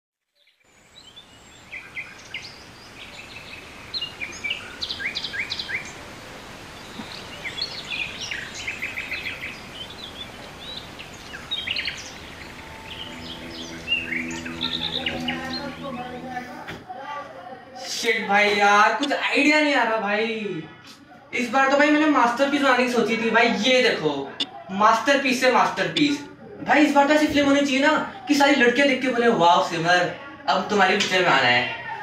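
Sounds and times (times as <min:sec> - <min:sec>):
birds chirping: 0:00.4 - 0:16.6, 0:25.9 - 0:26.4
steady background hiss: 0:00.7 - 0:19.9.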